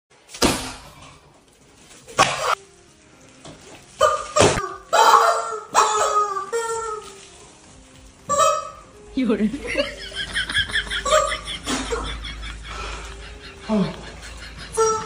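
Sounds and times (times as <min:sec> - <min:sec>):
rubber chickens honking: 0:04.0 - 0:07.3, 0:08.2 - 0:09.0, 0:14.5 - 0:15.0.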